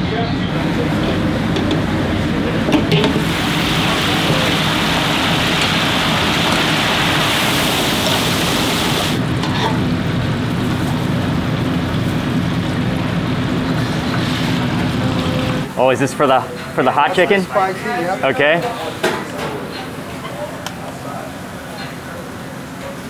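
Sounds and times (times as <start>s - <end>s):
chicken sizzling in oil: 3.2s - 15.0s.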